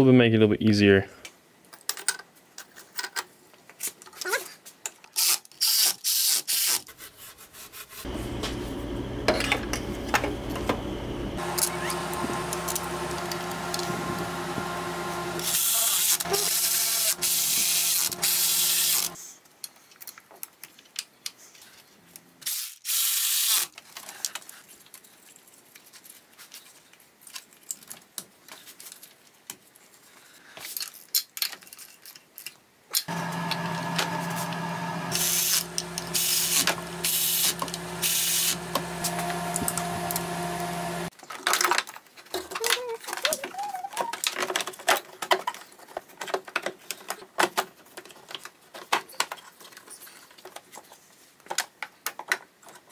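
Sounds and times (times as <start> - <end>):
cordless ratchet running: 15.4 - 19.2, 35.1 - 39.8.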